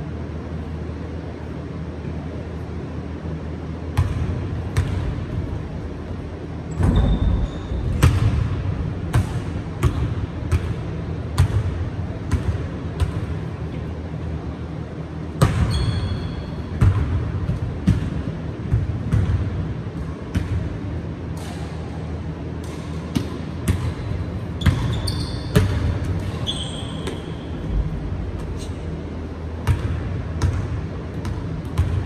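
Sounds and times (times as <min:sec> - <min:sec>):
sneaker squeaks: 0:06.7 - 0:08.2, 0:15.4 - 0:16.8, 0:24.5 - 0:27.8
basketball bouncing on hardwood floor: 0:24.6 - 0:26.0, 0:29.6 - 0:32.0
steady low rumble: 0:27.5 - 0:32.0.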